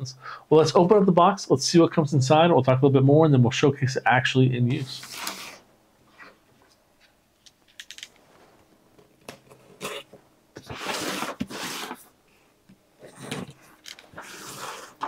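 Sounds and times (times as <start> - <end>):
box cutter cutting tape: 9.8 - 12.0.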